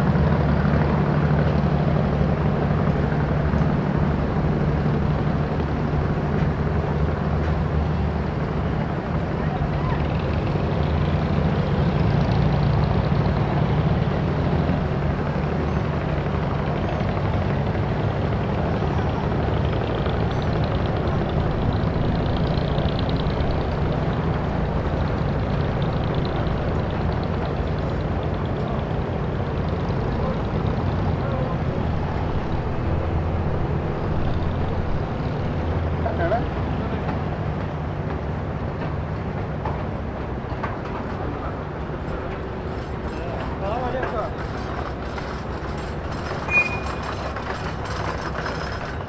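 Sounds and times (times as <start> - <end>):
low mechanical engine rumble: 0.0 - 49.0.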